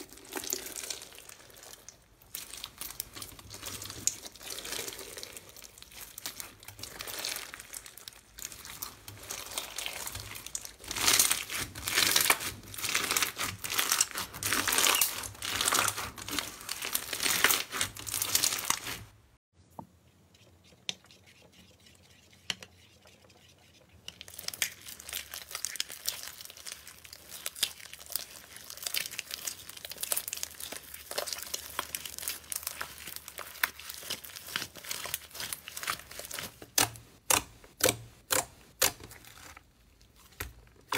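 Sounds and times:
crunchy slime crackling: 0.0s - 19.2s, 24.2s - 40.9s
fine slime crackle and popping: 0.0s - 19.2s, 24.2s - 37.9s, 38.8s - 40.9s.

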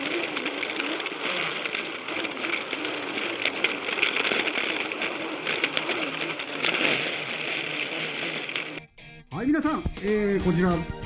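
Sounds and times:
wheels clicking on plastic track: 0.0s - 8.8s
toy train motor whirring: 0.0s - 8.9s.

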